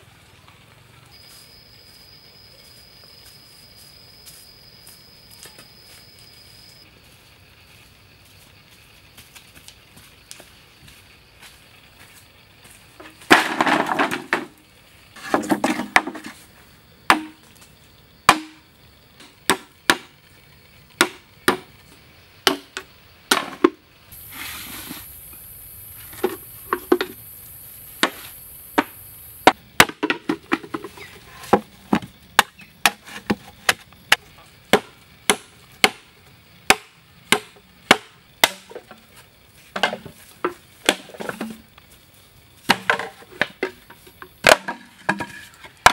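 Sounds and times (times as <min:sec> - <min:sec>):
bamboo poles clattering: 0:12.9 - 0:20.2, 0:21.0 - 0:23.8, 0:26.0 - 0:27.2, 0:28.8 - 0:45.9
bamboo chopped on wooden log: 0:13.0 - 0:14.6, 0:15.2 - 0:16.3, 0:17.1 - 0:17.6, 0:18.3 - 0:18.6, 0:19.2 - 0:20.1, 0:21.0 - 0:21.7, 0:22.4 - 0:23.8, 0:28.0 - 0:28.2, 0:28.8 - 0:36.1, 0:36.7 - 0:39.1, 0:39.8 - 0:41.6, 0:42.6 - 0:45.9.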